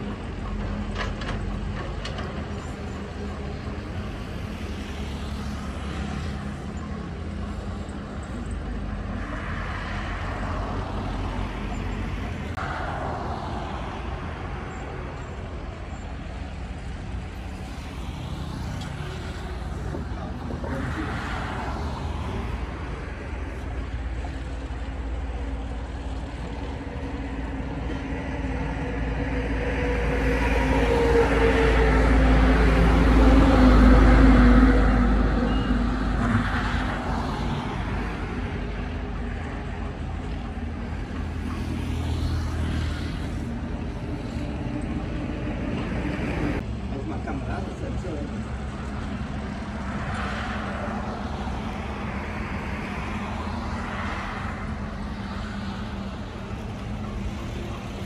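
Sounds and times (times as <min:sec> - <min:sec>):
bulldozer diesel engine running: 0:00.0 - 0:04.4.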